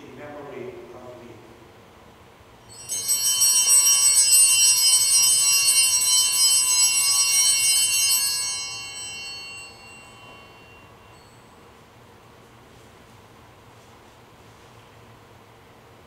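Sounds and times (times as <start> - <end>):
cluster of small bells ringing: 2.6 - 11.8.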